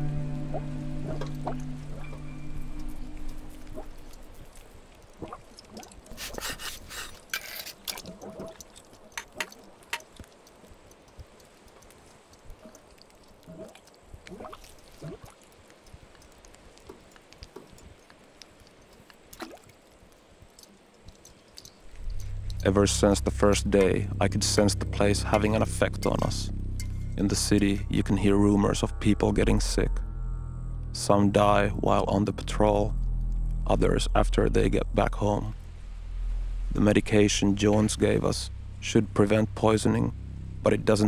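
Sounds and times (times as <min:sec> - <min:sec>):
faint liquid sounds: 0:00.0 - 0:29.9.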